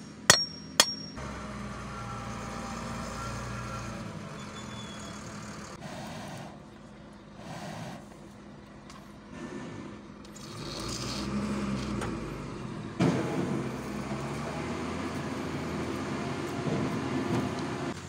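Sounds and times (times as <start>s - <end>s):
metallic clank of blade: 0.0s - 1.2s.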